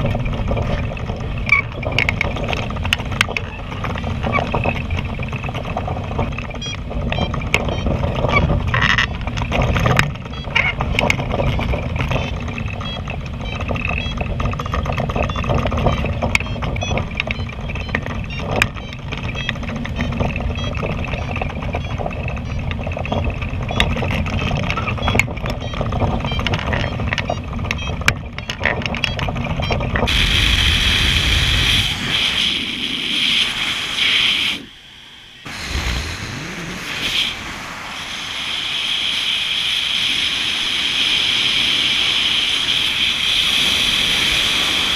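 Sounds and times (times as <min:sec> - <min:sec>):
glider cockpit rushing noise: 0:30.0 - 0:44.9.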